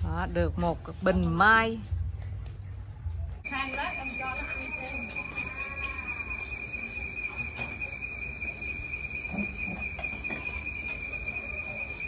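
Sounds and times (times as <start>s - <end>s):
crickets trilling: 3.4s - 12.0s.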